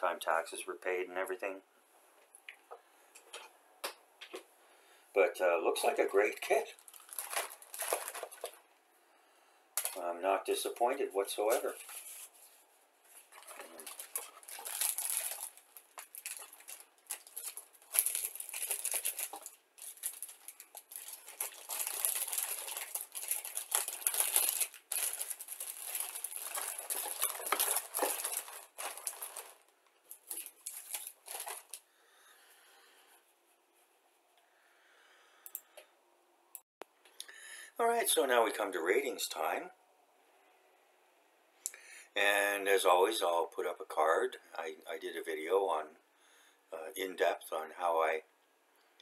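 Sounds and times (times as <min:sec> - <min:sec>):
plastic bags and paper crinkling: 0:05.8 - 0:08.8, 0:09.8 - 0:31.9.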